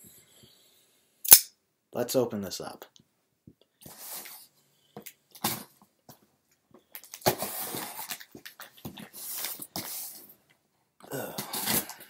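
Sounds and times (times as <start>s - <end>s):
cardboard rustling and scraping: 7.2s - 10.3s.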